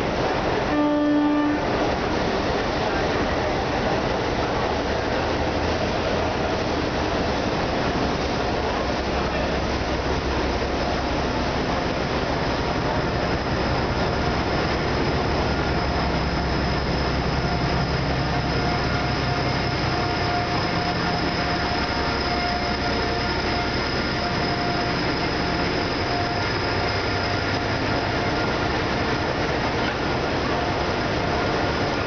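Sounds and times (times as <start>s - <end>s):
diesel locomotive rumbling: 0.0s - 32.0s
thin steady squeal: 15.5s - 29.2s.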